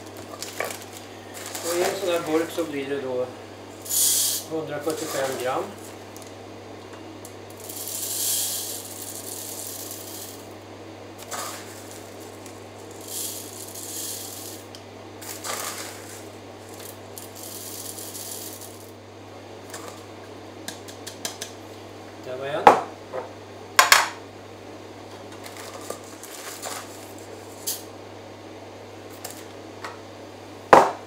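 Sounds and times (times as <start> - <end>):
dry granules pouring: 0.0 - 2.8, 3.8 - 5.9, 7.5 - 10.5, 11.2 - 18.9.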